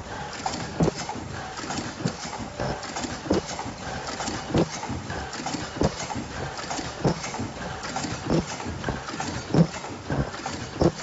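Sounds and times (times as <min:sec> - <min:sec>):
machine heavy clacking: 0:00.0 - 0:11.0
machine rattling and clicking: 0:00.0 - 0:11.0.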